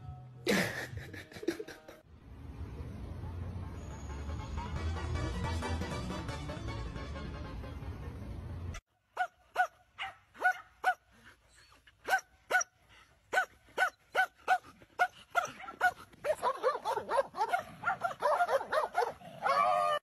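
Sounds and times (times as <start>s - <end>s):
dogs barking: 9.2s - 11.1s, 12.0s - 20.0s.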